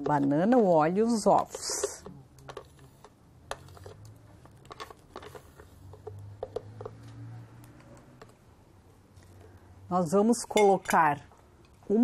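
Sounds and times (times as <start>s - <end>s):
metal spoon tapping and scraping plastic: 0.0s - 8.4s.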